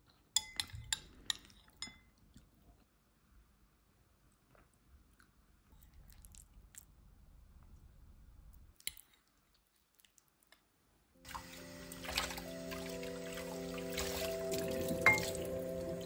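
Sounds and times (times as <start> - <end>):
soft music: 11.2 - 16.0
water running from a tap: 11.3 - 16.0.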